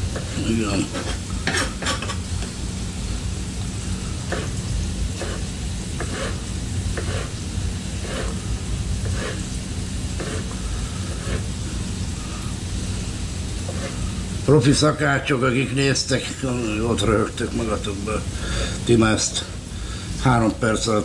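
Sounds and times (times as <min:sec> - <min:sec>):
faint sizzle in pan: 0:00.0 - 0:21.0
steady low hum: 0:00.0 - 0:21.0
knife chopping on cutting board: 0:04.3 - 0:04.6, 0:05.2 - 0:06.4, 0:07.0 - 0:07.3.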